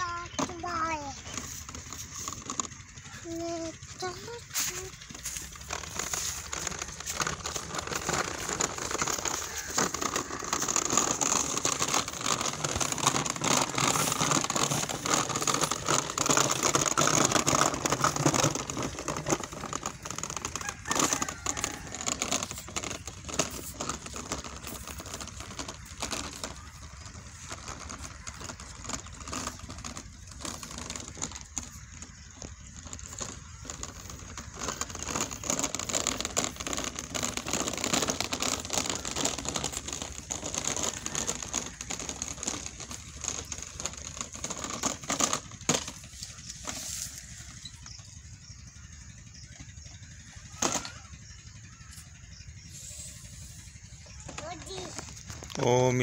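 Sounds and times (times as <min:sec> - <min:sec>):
plastic wheels crackling over leaves: 0:00.0 - 0:56.0.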